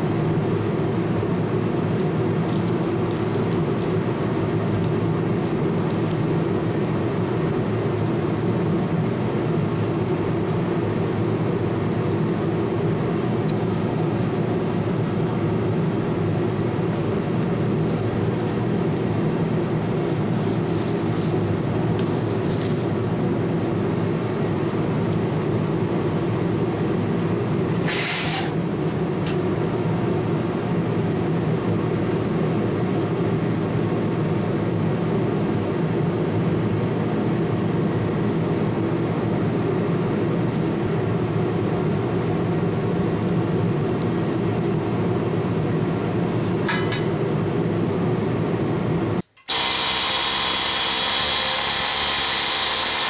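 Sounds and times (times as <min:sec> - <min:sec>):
air hammer cutting sheet steel: 0:27.7 - 0:28.6, 0:49.2 - 0:53.0.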